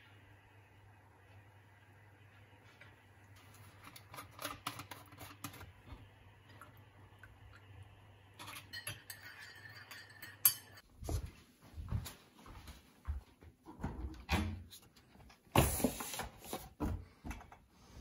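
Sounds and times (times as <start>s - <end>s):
milk pouring: 1.1s - 9.6s
teaspoon clinking against mug: 8.4s - 10.8s.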